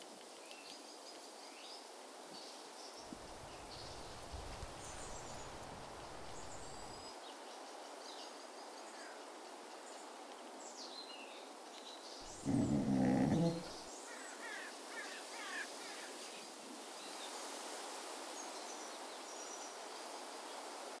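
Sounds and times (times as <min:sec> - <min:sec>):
small birds chirping: 0:09.9 - 0:14.0
dog vocalizing: 0:12.2 - 0:13.8.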